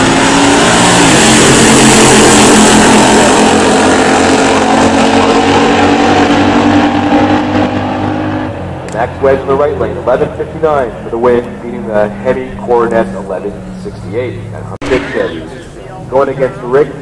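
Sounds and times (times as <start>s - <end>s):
drag cars launching at full throttle: 0.0s - 17.0s.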